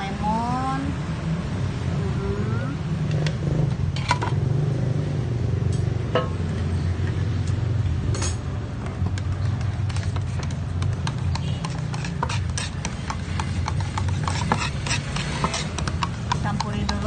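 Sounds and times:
metal bar scraping paint tin: 0:09.8 - 0:15.8.

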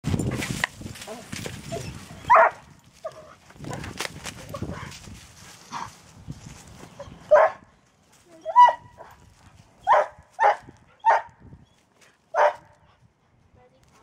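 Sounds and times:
dog barking: 0:02.3 - 0:02.6, 0:07.3 - 0:07.6, 0:09.9 - 0:11.3, 0:12.3 - 0:12.7.

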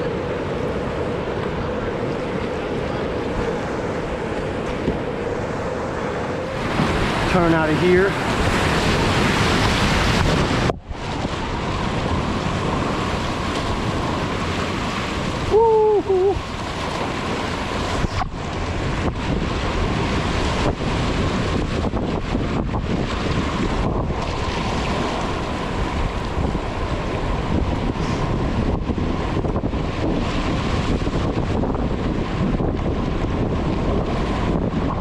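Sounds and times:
whitewater rushing and splashing: 0:00.0 - 0:35.0
wind buffeting microphone: 0:00.0 - 0:35.0
person shouting woo-hoo: 0:15.5 - 0:16.4.

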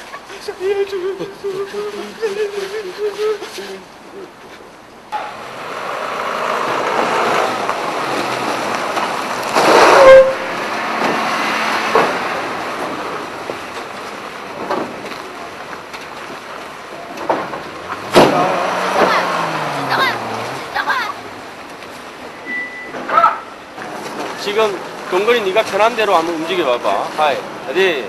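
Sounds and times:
truck engine driving past: 0:05.1 - 0:14.6, 0:17.6 - 0:22.9.

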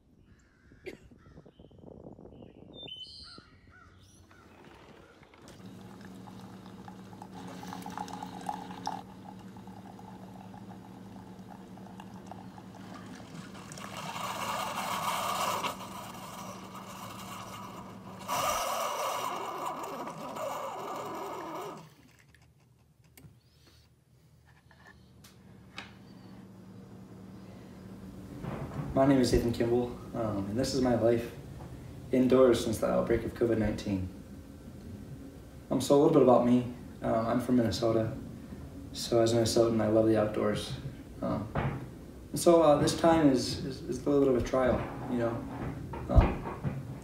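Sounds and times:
coffee trickling into mug: 0:04.3 - 0:22.4
coffee machine hum: 0:04.3 - 0:23.6, 0:24.5 - 0:47.0.

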